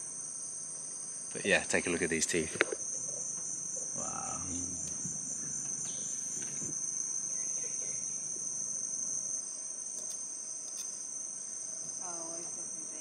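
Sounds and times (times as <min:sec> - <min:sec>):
insect chorus drone: 0:00.0 - 0:13.0.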